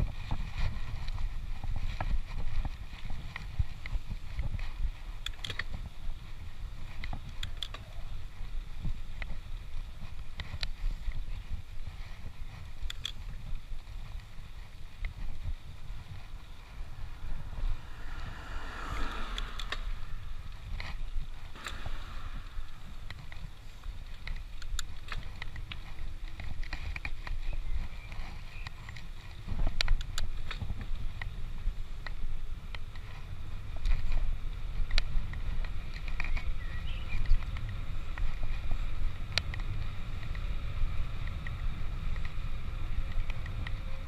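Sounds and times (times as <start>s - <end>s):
wind rumble on microphone: 0.0s - 44.0s
bicycle rattling clicks: 0.2s - 36.6s, 37.2s - 44.0s
broad hiss: 16.3s - 24.6s.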